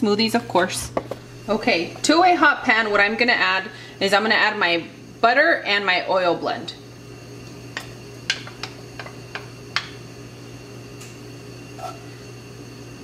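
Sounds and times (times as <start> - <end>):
steady low hum: 0.0 - 13.0
wooden spoon tapping a skillet: 7.8 - 10.0.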